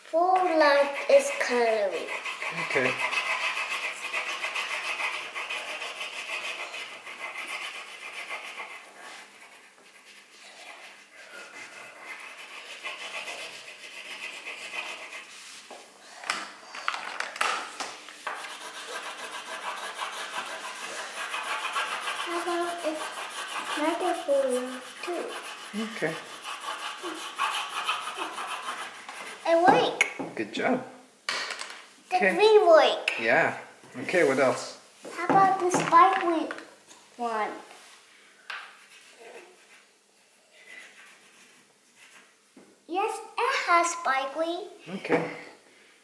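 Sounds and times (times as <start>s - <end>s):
crayon scribbling on paper: 0.2s - 15.6s, 18.2s - 30.0s, 38.7s - 39.9s, 40.6s - 42.4s
crayons clattering together: 16.3s - 17.8s, 35.6s - 36.7s.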